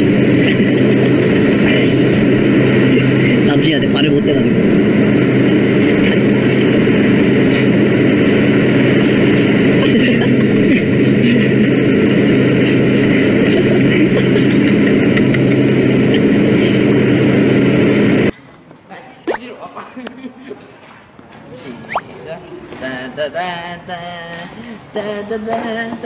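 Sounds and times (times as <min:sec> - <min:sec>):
jet engine drone in cabin: 0:00.0 - 0:18.3.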